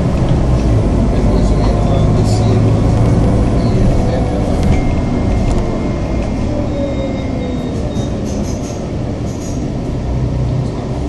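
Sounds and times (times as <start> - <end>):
bus engine and road rumble: 0.0 - 11.0
high squeaks: 3.1 - 9.7.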